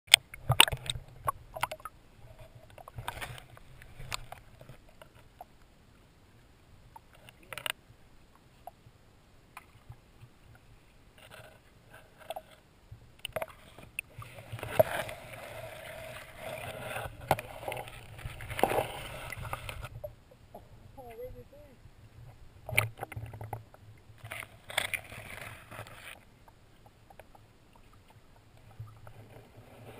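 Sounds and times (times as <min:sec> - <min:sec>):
underwater clicks and knocks: 0:00.1 - 0:05.5, 0:06.9 - 0:07.8, 0:13.2 - 0:15.1, 0:16.4 - 0:20.7, 0:22.2 - 0:29.5
water sloshing and gurgling: 0:00.1 - 0:29.9.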